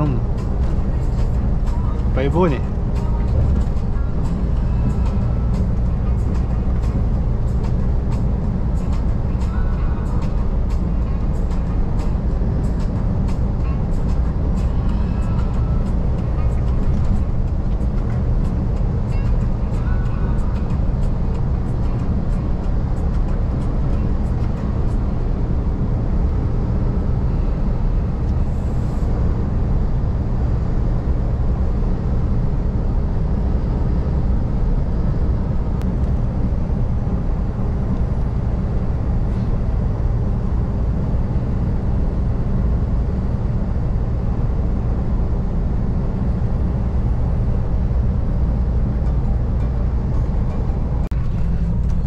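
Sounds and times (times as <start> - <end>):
diesel engine rumble: 0.0 - 52.0
road noise: 0.0 - 52.0.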